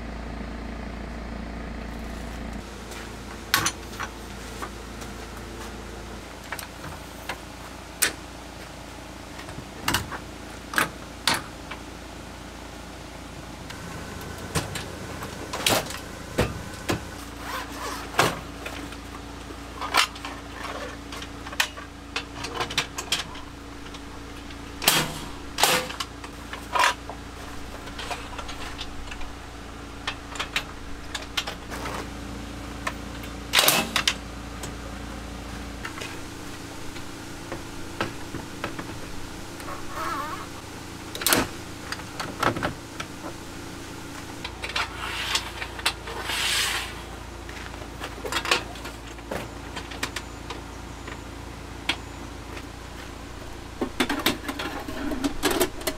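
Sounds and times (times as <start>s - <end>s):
steady low hum: 11.0s - 49.2s, 50.7s - 55.9s.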